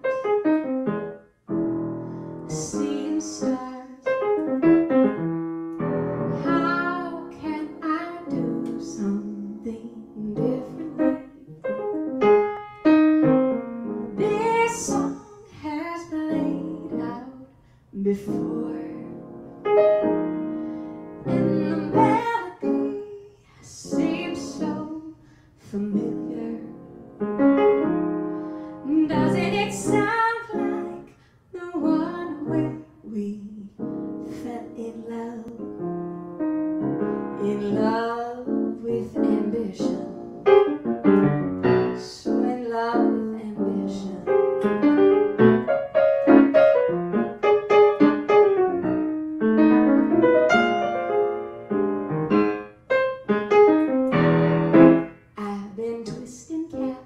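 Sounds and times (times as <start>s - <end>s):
piano playing: 0.0s - 17.4s, 18.0s - 25.1s, 25.7s - 31.1s, 31.7s - 55.4s
woman singing: 2.5s - 4.7s, 6.3s - 11.7s, 14.2s - 19.2s, 21.2s - 27.0s, 28.8s - 35.9s, 37.4s - 40.5s, 42.0s - 45.0s, 55.4s - 57.0s.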